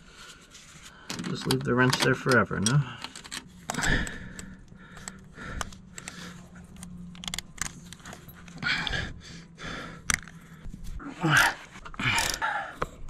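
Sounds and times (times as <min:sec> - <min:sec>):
steady low hum: 0:02.1 - 0:13.0
heavy panting breath: 0:02.8 - 0:07.0, 0:08.2 - 0:12.9.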